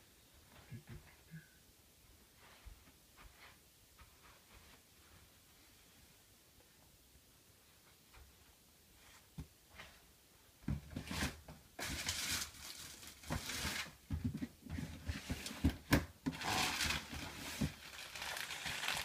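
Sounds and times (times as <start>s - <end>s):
bag rustling and crinkling: 16.3s - 19.0s.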